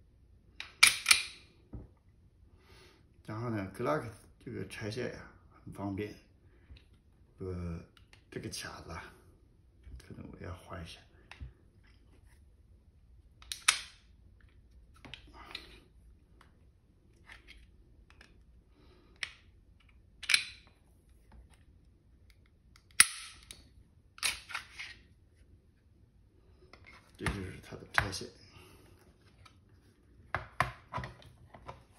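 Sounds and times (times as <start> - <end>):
sharp metallic pistol clicks: 0.8 - 1.4, 22.9 - 23.6.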